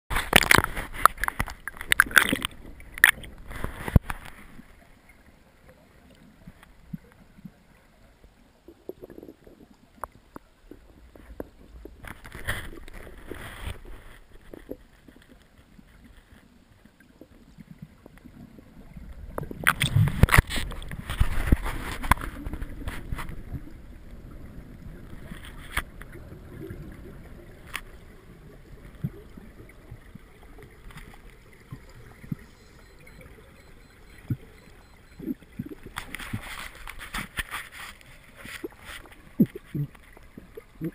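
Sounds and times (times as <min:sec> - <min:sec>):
rushing bubbling water: 0:00.1 - 0:40.9
water splashing and gurgling: 0:00.1 - 0:40.9
muffled underwater noise: 0:18.6 - 0:40.9.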